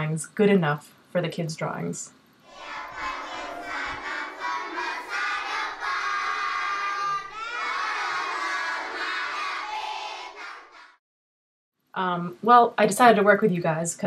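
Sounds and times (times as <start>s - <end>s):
crowd of children shouting: 2.5s - 11.0s.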